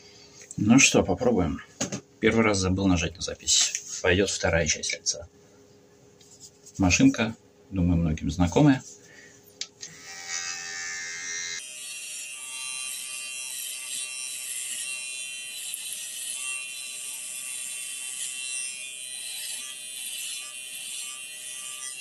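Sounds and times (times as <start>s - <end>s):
hair clipper buzzing: 9.8s - 22.0s.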